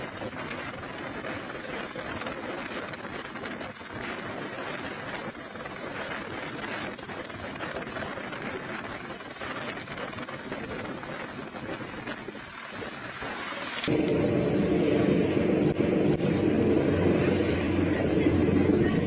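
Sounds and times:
helicopter hovering: 0.0 - 19.0
loud deep drone: 13.9 - 19.0.

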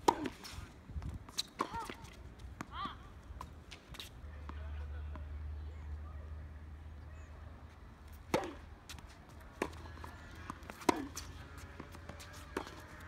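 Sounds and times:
tennis ball bouncing: 0.0 - 0.5, 1.2 - 5.3, 8.1 - 13.0
tennis racket hitting ball: 0.0 - 0.5, 8.3 - 13.0.

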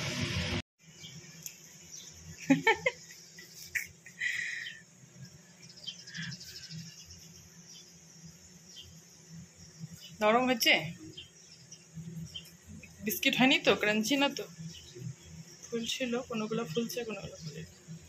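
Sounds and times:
high insect trill: 0.8 - 18.0.

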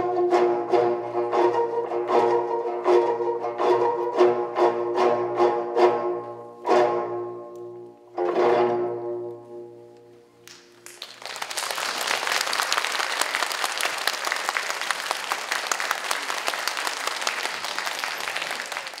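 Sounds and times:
audience applause: 10.5 - 19.0.

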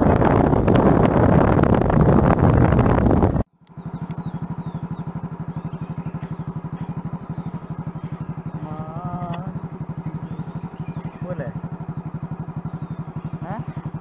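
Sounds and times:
motorcycle engine idling: 0.0 - 14.0.

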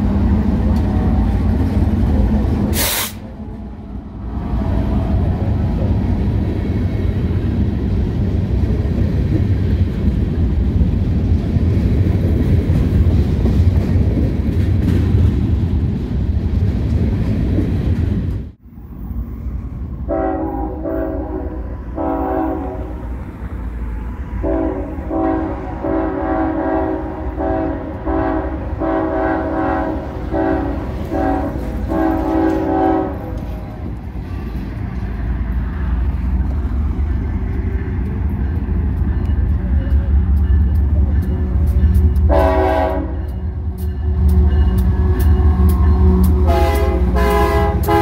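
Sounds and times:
freight train rumbling past: 0.0 - 48.0
locomotive engine rumble: 0.0 - 48.0
locomotive air horn blasts: 2.7 - 3.2, 20.1 - 23.1, 24.4 - 33.4, 42.3 - 43.4, 45.2 - 48.0
train wheel clatter: 8.4 - 18.6, 36.3 - 48.0.

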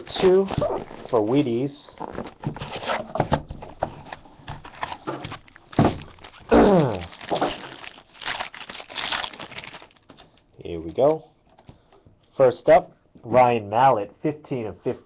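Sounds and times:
plastic wrapper crinkling: 4.0 - 11.8.

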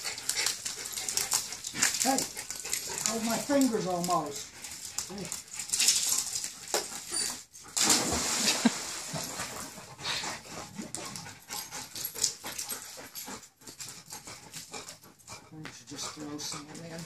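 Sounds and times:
dog whimpering: 7.1 - 7.5
water splashing: 7.8 - 9.8.

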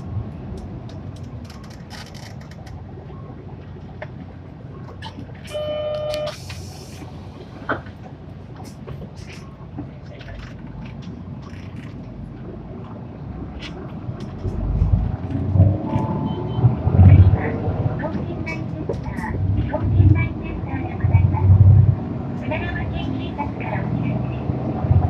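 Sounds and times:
bus engine and road rumble: 0.0 - 25.0
short electronic beep: 5.4 - 6.4, 15.8 - 16.7.

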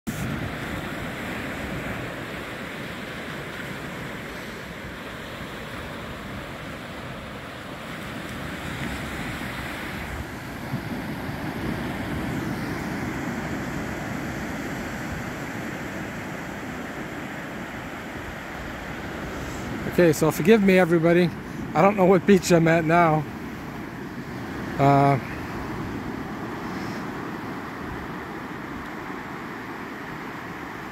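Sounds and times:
small waves washing on a beach: 0.1 - 30.9
wind rumble on microphone: 4.8 - 20.0.

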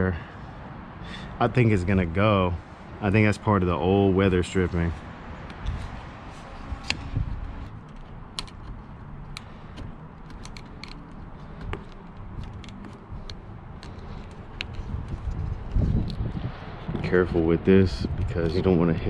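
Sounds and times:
weather stripping pulled loose: 6.6 - 16.2.

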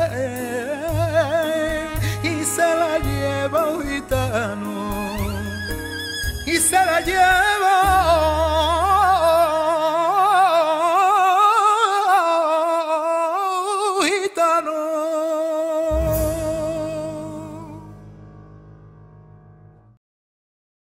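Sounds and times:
low instrumental accompaniment: 0.0 - 9.6, 15.9 - 19.9
man singing with vibrato: 0.0 - 18.0.

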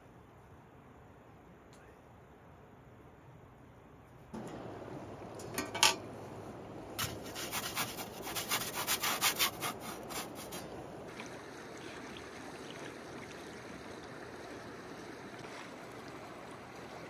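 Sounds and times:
steady background hiss: 0.0 - 17.0
quick scraping strokes: 7.0 - 10.8.

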